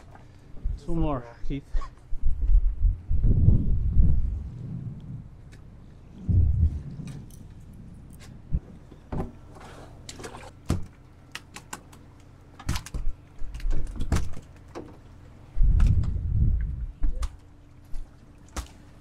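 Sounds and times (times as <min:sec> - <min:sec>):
low rumbly bursts: 0:00.0 - 0:10.2, 0:14.6 - 0:18.3.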